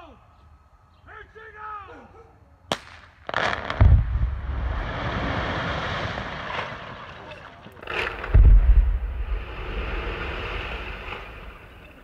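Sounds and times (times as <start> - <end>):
rumble of breaking rock: 5.2 - 11.8
heavy boom rumbling: 8.2 - 11.6.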